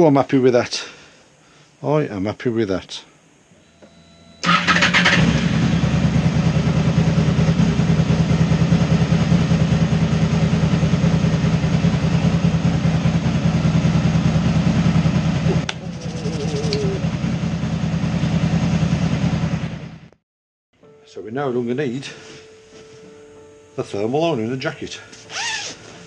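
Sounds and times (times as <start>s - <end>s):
motorcycle engine idling: 4.4s - 20.1s.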